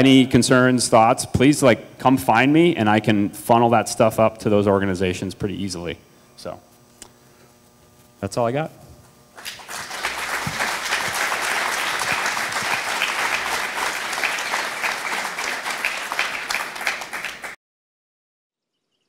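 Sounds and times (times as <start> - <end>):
audience applauding: 9.4 - 17.6.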